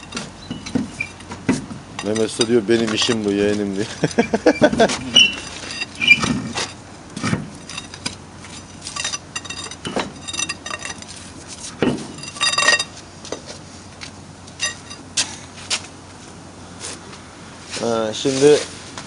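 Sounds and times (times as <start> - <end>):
metal tools clinking: 0.0 - 13.0, 14.5 - 15.1.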